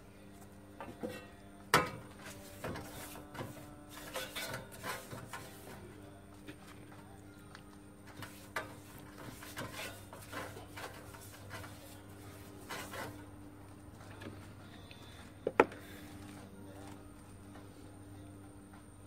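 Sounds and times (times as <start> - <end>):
brush scrubbing copper pan: 2.2 - 5.9, 8.1 - 13.3.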